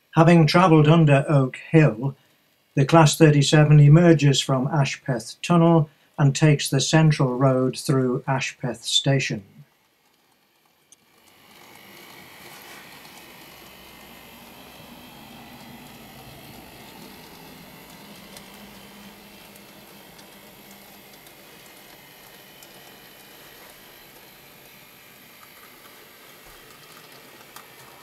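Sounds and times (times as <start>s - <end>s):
model train motor whirring: 9.7s - 28.0s.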